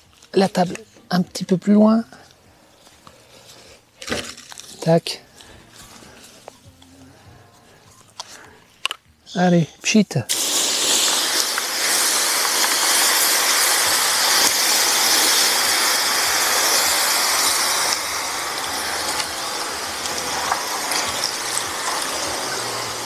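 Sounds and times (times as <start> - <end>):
fire extinguisher hissing: 10.3 - 23.0.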